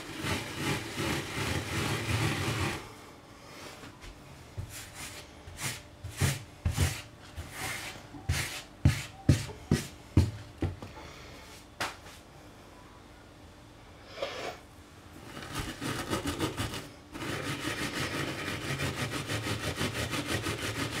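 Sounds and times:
fingers scratching melted plastic: 15.2 - 21.0.

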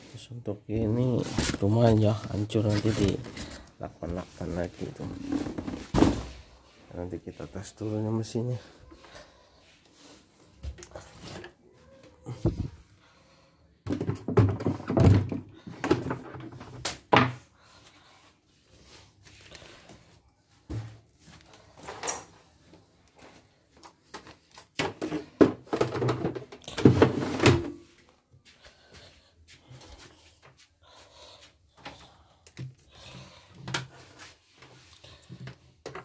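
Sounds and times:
thumps and knocks: 13.8 - 17.4.

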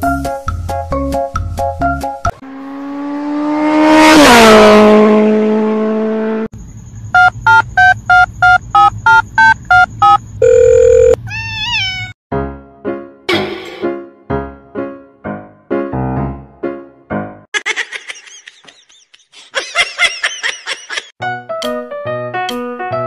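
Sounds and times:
rapid electronic beeping: 7.2 - 11.2.

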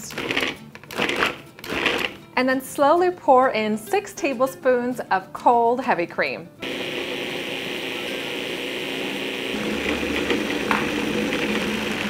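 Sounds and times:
food processor motor running: 0.1 - 2.2, 6.6 - 12.0.

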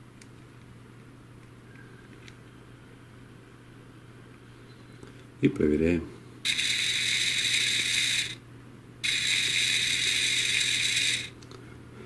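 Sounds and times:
gear motor high mechanical whir: 6.5 - 8.4, 9.0 - 11.4.

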